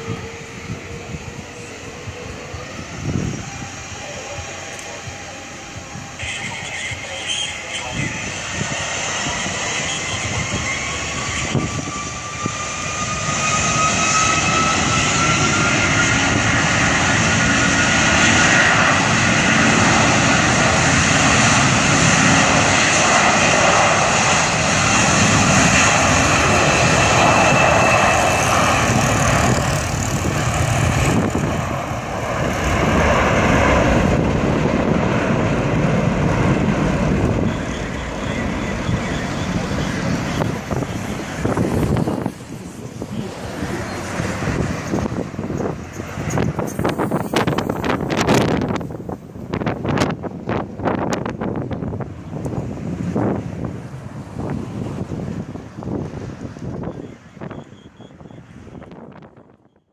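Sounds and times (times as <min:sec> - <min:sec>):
loud jet engine noise: 0:00.0 - 0:59.9
turbofan whine rising in pitch: 0:09.3 - 0:51.7.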